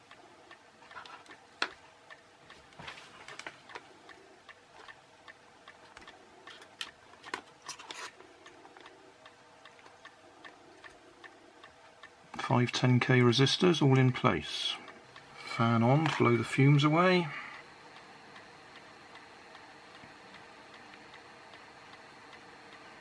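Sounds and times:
small clicks and scratches of wires: 0.0s - 12.5s.

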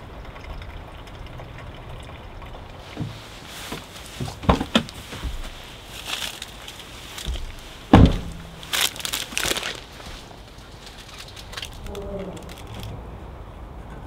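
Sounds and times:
footsteps: 2.9s - 11.1s
jacket fabric rustling: 2.9s - 11.7s
car door shutting: 7.3s - 8.6s.

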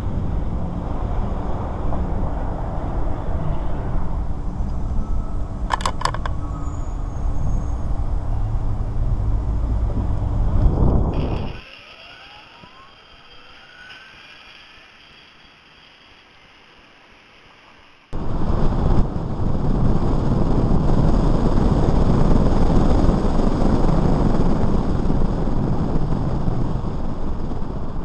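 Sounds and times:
rushing wind: 0.0s - 28.0s
electric motor whining: 8.4s - 18.1s.

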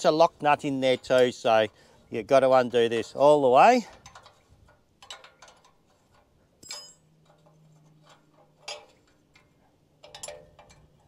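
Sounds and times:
spanner clinking on metal: 0.7s - 1.8s, 3.8s - 11.0s.

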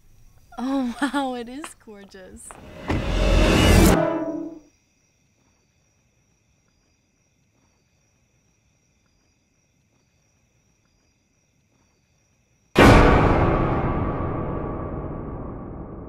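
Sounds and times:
crickets chirping: 0.0s - 12.8s.

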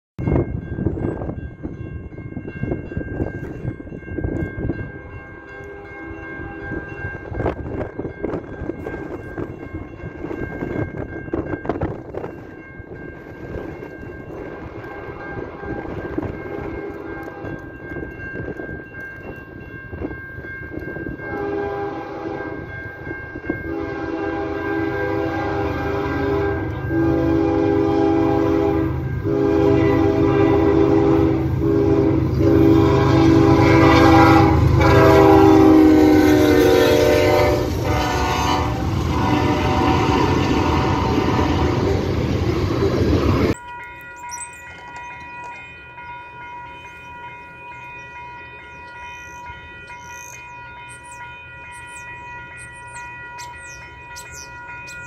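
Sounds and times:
wind buffeting microphone: 0.2s - 5.8s, 6.4s - 24.5s
locomotive air horn blasts: 21.2s - 22.7s, 23.6s - 42.1s
locomotive engine rumble: 23.4s - 50.0s.

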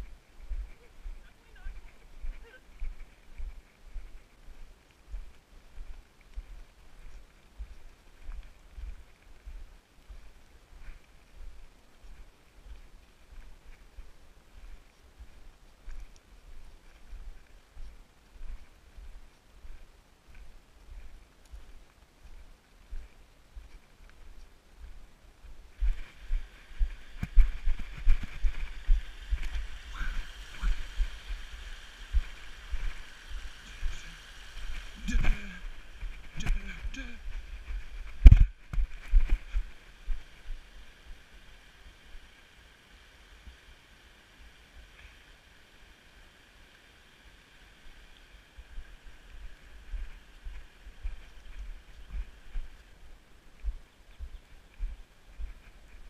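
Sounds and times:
faint steady hiss: 0.0s - 56.0s
wind buffeting microphone: 24.9s - 40.7s
stream gurgling over rocks: 25.7s - 53.1s.

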